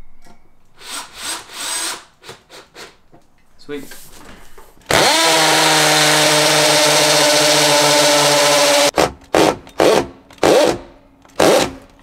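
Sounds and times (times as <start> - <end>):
cordless drill whining: 4.9 - 8.9.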